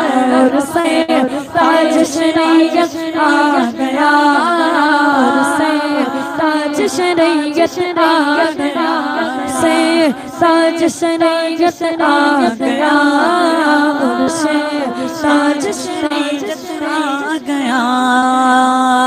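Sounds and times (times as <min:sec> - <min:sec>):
boys singing unaccompanied: 0:00.0 - 0:19.0.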